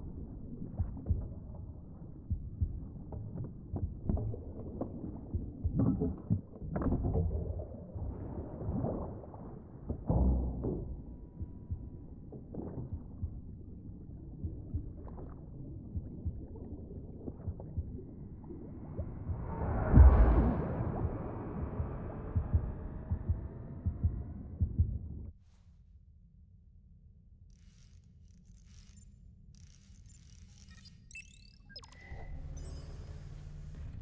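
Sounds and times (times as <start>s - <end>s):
low underwater rumble: 0.0s - 25.3s.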